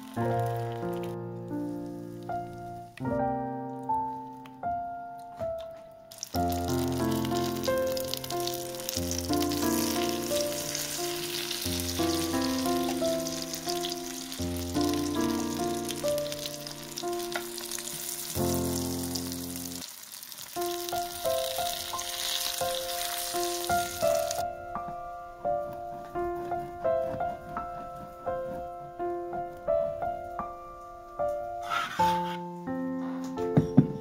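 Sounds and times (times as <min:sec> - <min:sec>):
slices sizzling in hot oil: 0:00.0 - 0:02.9, 0:06.1 - 0:24.4
background piano music: 0:00.0 - 0:34.0.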